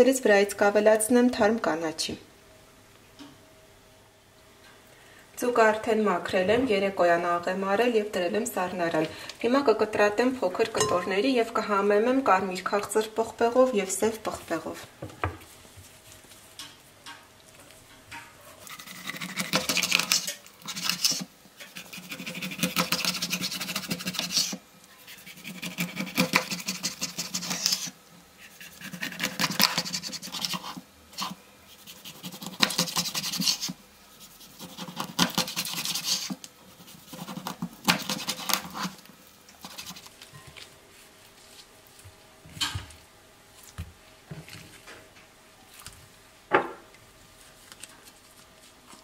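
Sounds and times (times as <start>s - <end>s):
knife crunching through fish: 34.6s - 40.2s.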